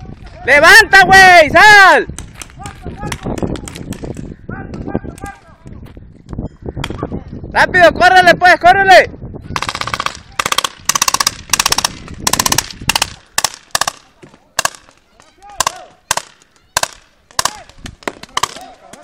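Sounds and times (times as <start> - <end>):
paintball markers firing: 9.6 - 19.0.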